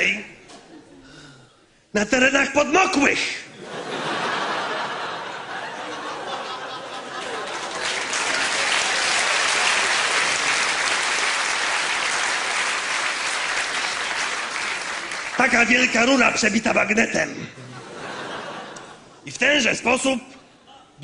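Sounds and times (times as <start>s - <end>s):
audience applauding: 5.6s - 16.2s.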